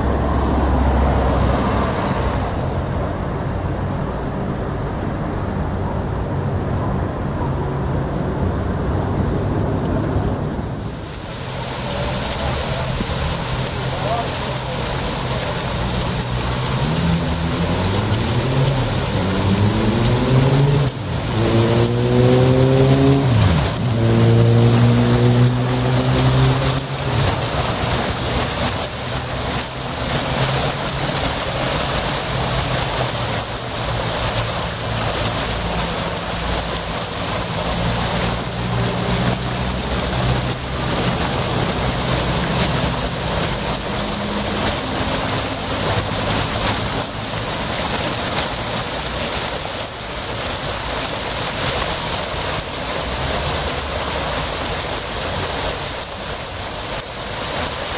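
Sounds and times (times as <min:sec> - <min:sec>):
vehicle engine accelerating through gears: 0:00.0 - 0:03.0, 0:15.1 - 0:50.8
fountain water splashing: 0:00.0 - 0:57.9.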